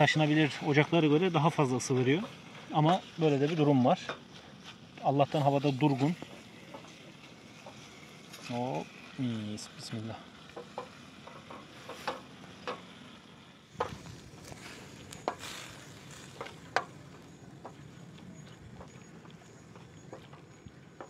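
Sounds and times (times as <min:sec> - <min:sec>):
meat sizzling in a pan: 0:04.6 - 0:18.1.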